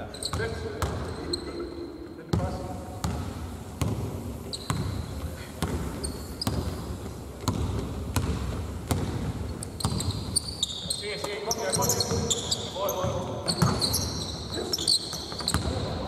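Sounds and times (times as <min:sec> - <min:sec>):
shoe squeaks: 0:00.0 - 0:01.9, 0:04.4 - 0:07.0, 0:09.4 - 0:16.0
basketball dribbling on court: 0:02.3 - 0:14.2.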